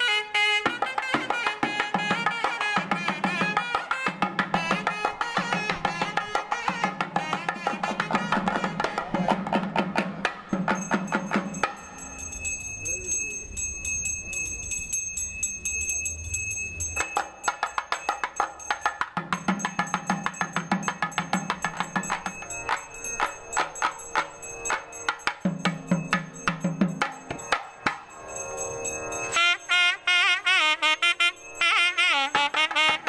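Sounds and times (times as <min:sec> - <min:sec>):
reed pipe melody: 0:00.0 - 0:16.0, 0:19.3 - 0:33.0
fast drum strokes: 0:01.0 - 0:11.9
high ringing tone: 0:10.5 - 0:32.5.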